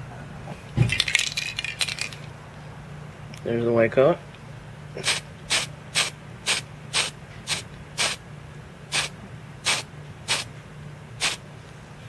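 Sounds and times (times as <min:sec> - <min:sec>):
aerosol paint spray hissing: 0:05.0 - 0:08.2, 0:08.9 - 0:10.5, 0:11.2 - 0:11.4.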